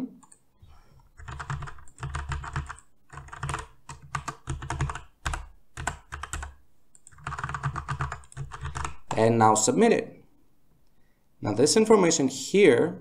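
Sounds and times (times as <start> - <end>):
typing on computer keyboard: 1.1 - 9.2.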